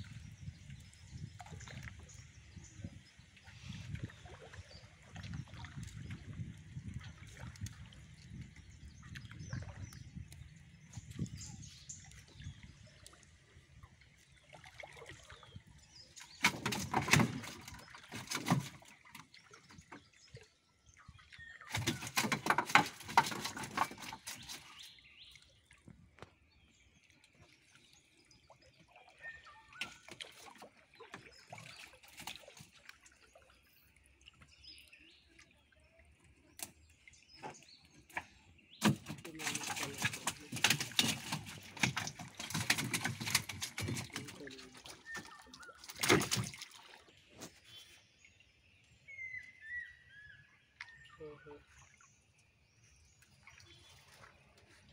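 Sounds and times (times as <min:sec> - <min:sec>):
water pouring off wet net: 0:38.8 - 0:47.1.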